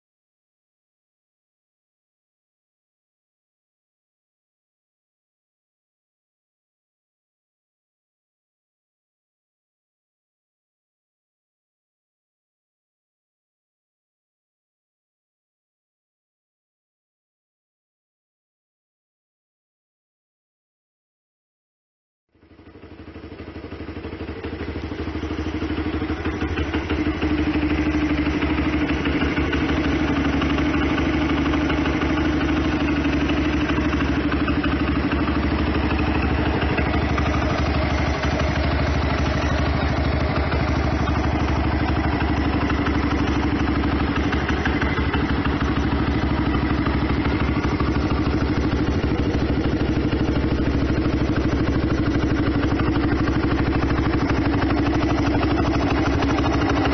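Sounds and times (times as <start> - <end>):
motorcycle engine idling: 22.3 - 56.9.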